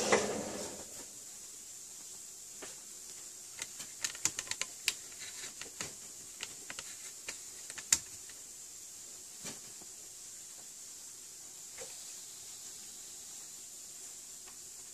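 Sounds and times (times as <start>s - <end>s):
sharp clicks and taps: 3.6s - 8.4s.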